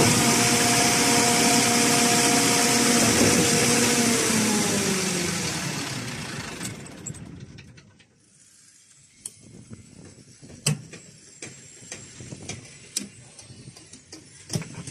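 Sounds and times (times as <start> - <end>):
pump engine winding down: 0.0 - 7.6.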